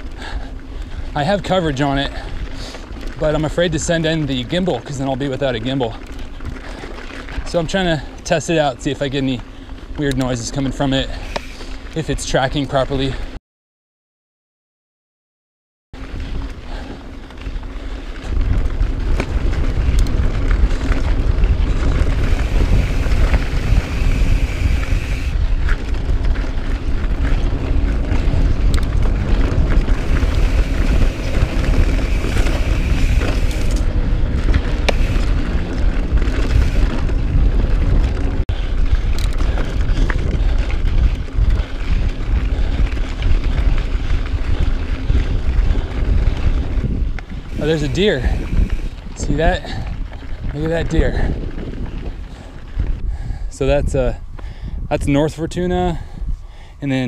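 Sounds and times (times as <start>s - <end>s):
bike tyre rumble: 0.0s - 13.4s, 16.0s - 57.0s
bike knocks and rattles: 16.0s - 48.9s
wind on microphone: 16.0s - 57.0s.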